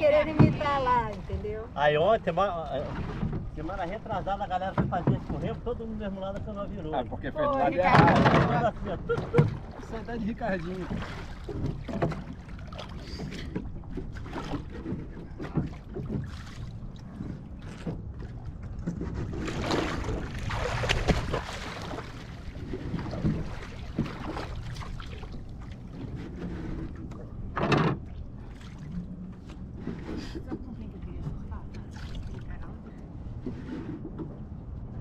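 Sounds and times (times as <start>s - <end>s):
water splashing against canoe hull: 0.0s - 1.6s, 2.4s - 6.7s, 7.5s - 34.9s.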